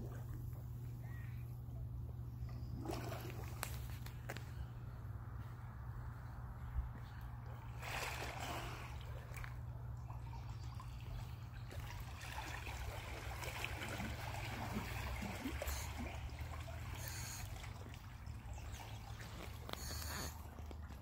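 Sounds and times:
steady low hum: 0.0s - 21.0s
water sloshing and trickling: 0.0s - 21.0s.

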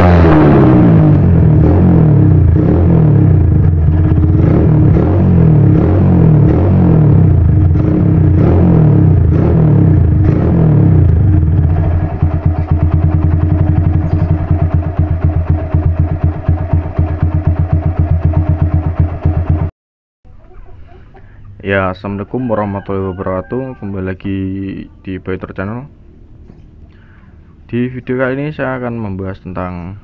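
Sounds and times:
motorcycle engine idling: 2.2s - 5.0s, 7.2s - 19.7s.

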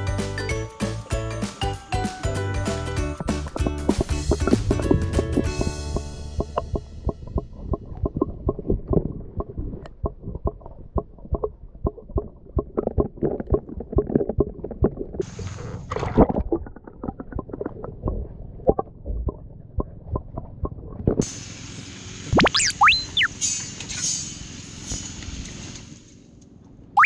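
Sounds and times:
dog paddling underwater: 5.9s - 21.2s.

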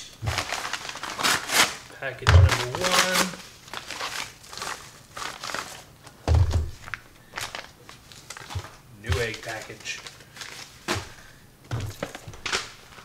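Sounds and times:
paper envelope rustling and crinkling: 0.3s - 13.0s
dull thud on wooden bench: 6.3s - 6.8s.

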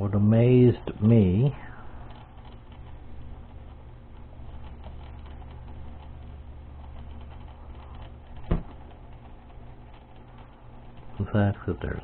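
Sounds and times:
turntable motor humming: 0.0s - 12.0s.

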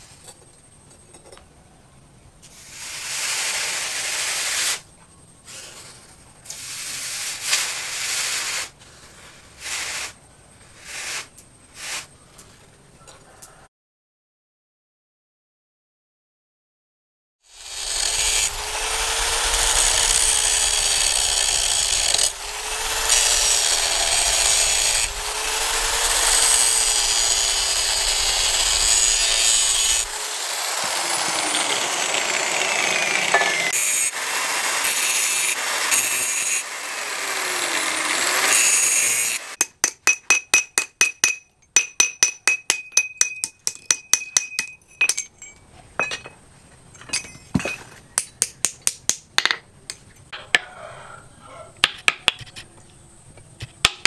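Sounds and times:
angle grinder grinding steel: 17.5s - 40.3s
hammer striking steel anvil: 33.3s - 33.7s, 39.6s - 46.4s.

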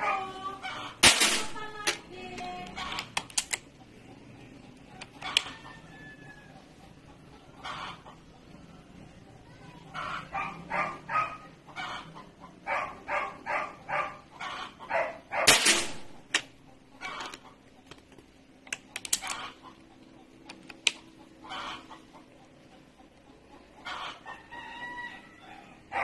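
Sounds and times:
dog barking: 0.0s - 0.4s, 10.0s - 12.0s, 12.6s - 15.6s
sharp clicks: 1.0s - 3.8s, 17.2s - 19.6s.

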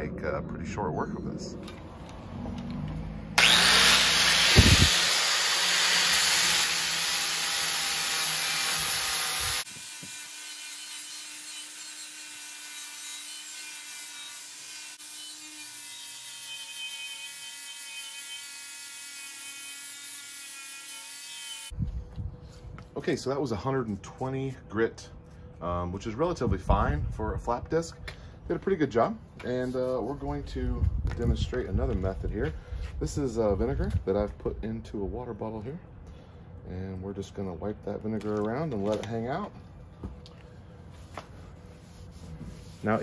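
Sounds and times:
angle grinder sanding metal: 3.4s - 21.7s.

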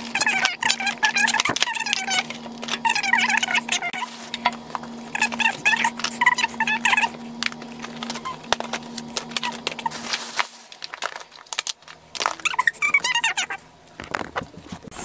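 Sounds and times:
animal squeaking: 0.1s - 4.5s, 5.1s - 7.2s, 8.0s - 8.5s, 12.4s - 13.6s
boxes and plastic cases clicking: 7.4s - 13.3s.

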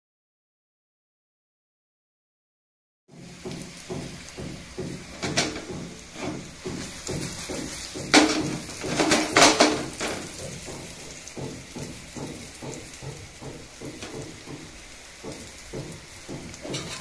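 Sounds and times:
faint frying sizzle: 3.1s - 17.0s
pan knocking and clattering: 3.6s - 17.0s.

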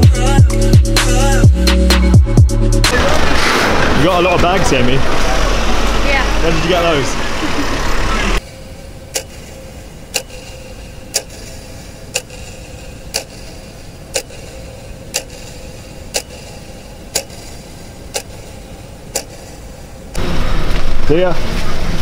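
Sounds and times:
low steady hum: 4.4s - 22.0s
clock ticking: 8.4s - 20.1s.

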